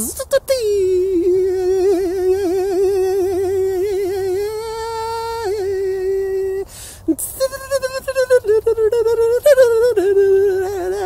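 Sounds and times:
man holding wavering vocal tone: 0.0s - 11.0s
breath: 6.7s - 7.1s.

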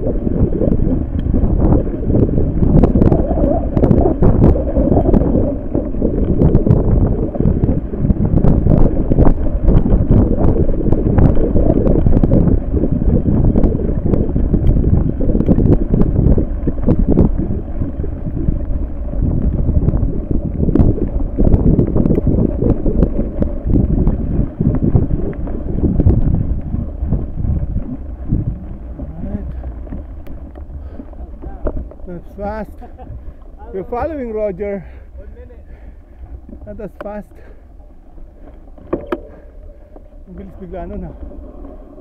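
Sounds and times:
wind buffeting microphone: 0.0s - 42.0s
sharp clicks and knocks: 38.8s - 39.3s.

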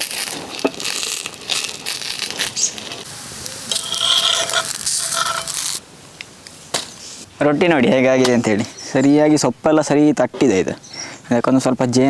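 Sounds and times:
wood fire crackling: 0.0s - 6.6s
ringing metallic squeal: 3.1s - 5.8s
metal spatula scraping iron pan: 3.7s - 5.8s.

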